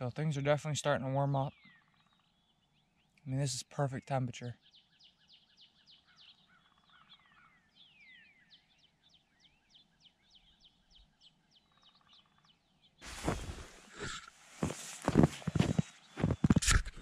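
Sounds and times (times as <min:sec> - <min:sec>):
small songbirds chirping: 0:00.2 - 0:16.9
camera handling rustling and crunching: 0:13.1 - 0:17.0.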